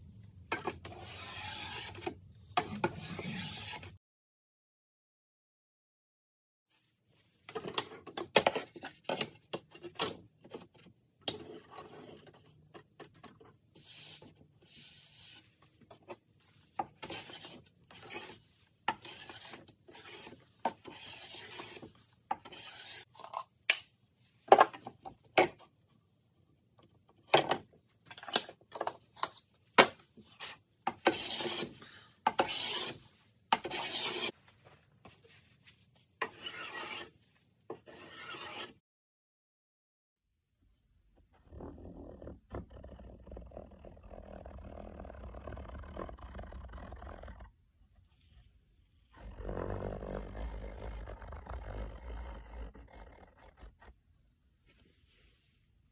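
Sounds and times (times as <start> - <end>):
hand plane shaving wood: 0.6 - 4.0, 17.0 - 23.1, 30.4 - 34.4, 36.2 - 37.1, 37.8 - 38.8.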